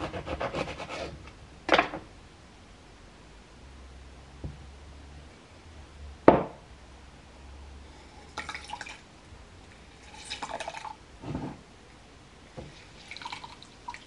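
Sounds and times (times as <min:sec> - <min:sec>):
juice dripping into a glass: 0:08.3 - 0:09.0, 0:09.7 - 0:11.0, 0:12.8 - 0:14.0.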